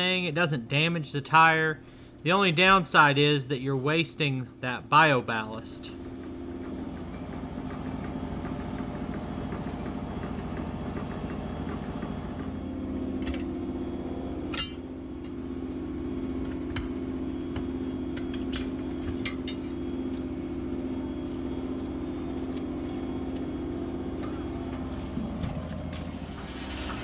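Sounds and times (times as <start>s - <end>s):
engine idling: 18.6s - 27.0s.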